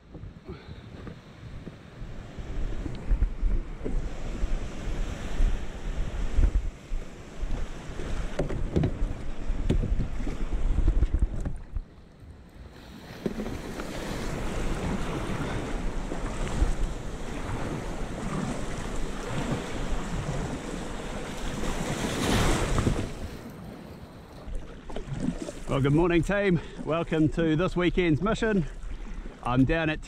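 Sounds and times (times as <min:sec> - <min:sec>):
wind buffeting microphone: 0:00.0 - 0:11.9, 0:13.4 - 0:23.4
sea water washing around kayak: 0:00.0 - 0:30.0.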